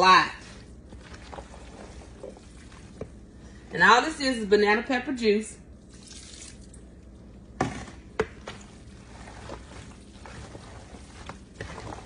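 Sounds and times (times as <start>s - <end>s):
spoon stirring and scraping pasta: 0.4s - 3.6s, 7.7s - 12.0s
liquid pouring from plastic jar: 5.8s - 6.8s.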